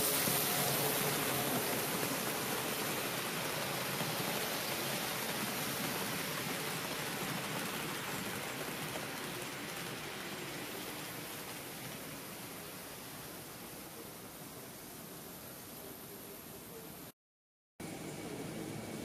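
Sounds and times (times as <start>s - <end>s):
model train wheels rumbling on track: 0.0s - 14.0s.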